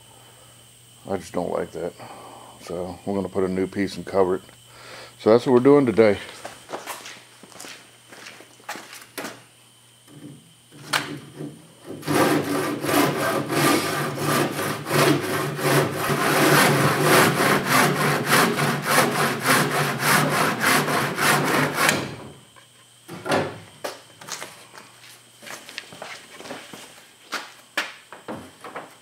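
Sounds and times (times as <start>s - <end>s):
hand saw cutting wood: 10.8s - 22.3s.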